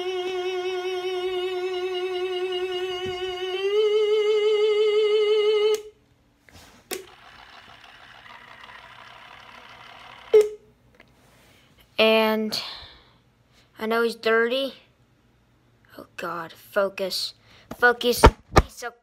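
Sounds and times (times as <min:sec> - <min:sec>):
quiet steady whir: 0:00.0 - 0:18.9.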